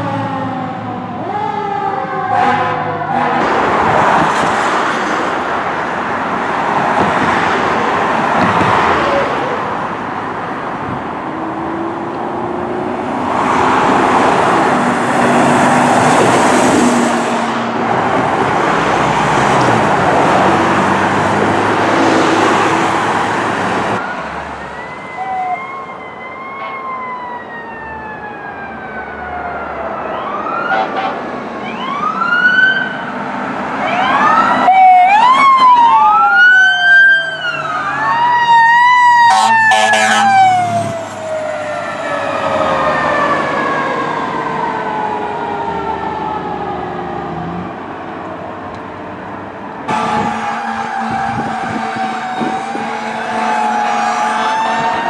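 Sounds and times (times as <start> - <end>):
rushing vehicle noise: 0.0 - 55.0
electronic siren wailing: 24.0 - 31.0, 33.8 - 47.0, 49.9 - 55.0.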